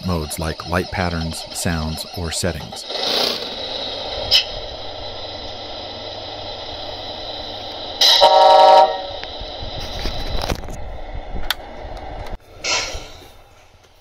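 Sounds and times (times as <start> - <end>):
air horn from small speaker: 8.0 - 9.0.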